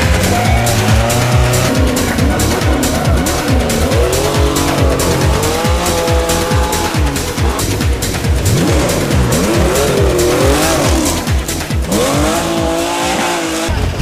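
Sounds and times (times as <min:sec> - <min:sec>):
car engine revving: 0:00.0 - 0:14.0
music with pounding beat: 0:00.0 - 0:14.0.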